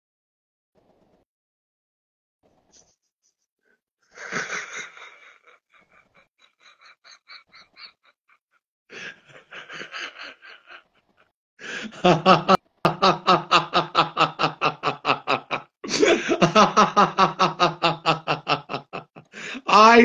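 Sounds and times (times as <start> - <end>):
woman laughing: 4.2 - 8.4, 12.0 - 19.1.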